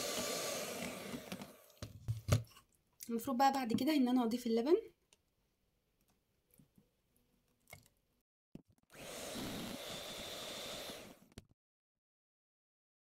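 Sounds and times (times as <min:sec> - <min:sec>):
electric hand mixer whining: 0:00.0 - 0:01.9, 0:08.9 - 0:11.4.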